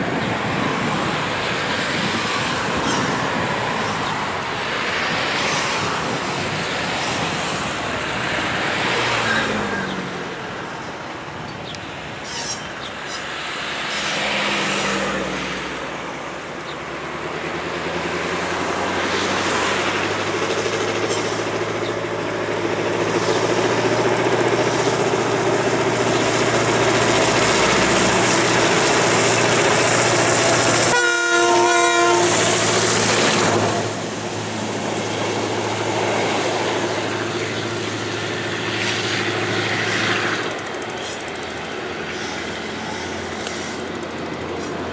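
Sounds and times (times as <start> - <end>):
diesel locomotive engine passing: 0.0 - 44.9
train horn: 30.8 - 33.9.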